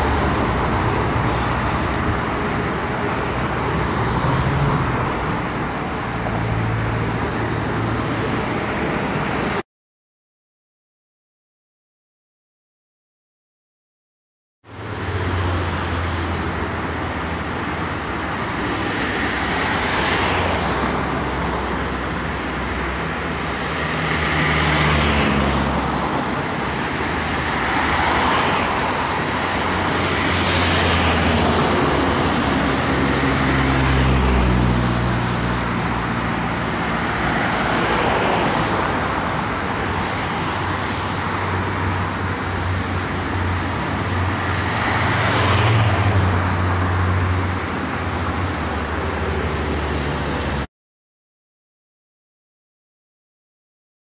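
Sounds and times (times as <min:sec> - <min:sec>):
background traffic rumble: 0:00.0 - 0:09.6
vehicles passing close by: 0:00.0 - 0:09.6, 0:14.6 - 0:50.7.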